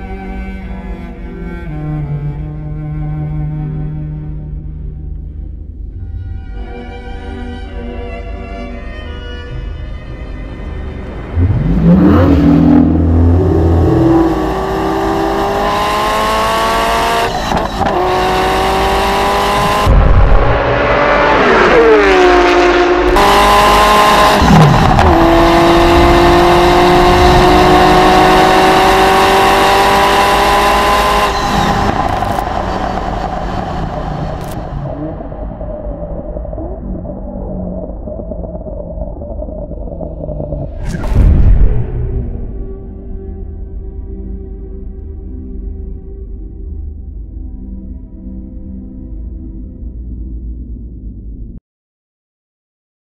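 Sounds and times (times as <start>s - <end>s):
car engine accelerating through gears: 11.3s - 36.6s.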